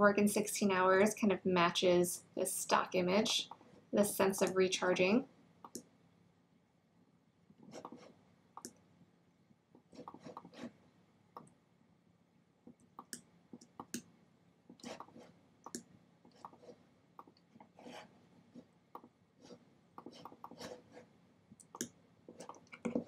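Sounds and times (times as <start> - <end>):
computer mouse clicking: 5.6 - 5.9, 8.6 - 8.8, 12.7 - 14.1, 21.5 - 23.0.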